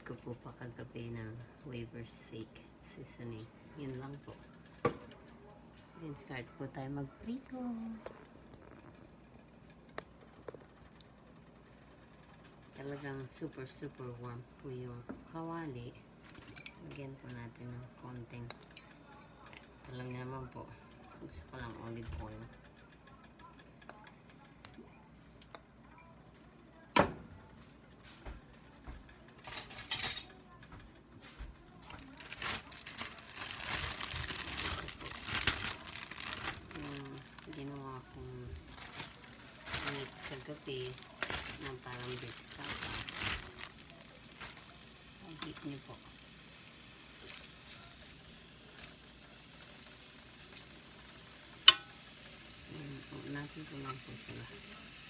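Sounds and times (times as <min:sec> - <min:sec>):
cookware clinking: 0:29.4 - 0:30.5, 0:51.6 - 0:52.1
meat sizzling in a pan: 0:44.6 - 0:55.0.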